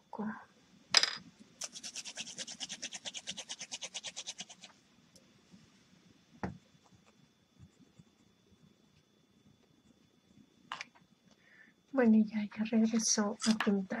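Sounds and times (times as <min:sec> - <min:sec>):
pen scribbling on paper: 0:01.6 - 0:04.7.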